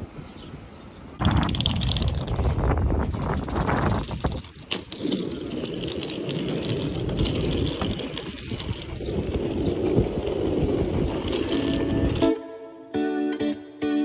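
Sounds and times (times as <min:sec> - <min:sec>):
suitcase wheels rolling on asphalt: 0:01.2 - 0:12.4.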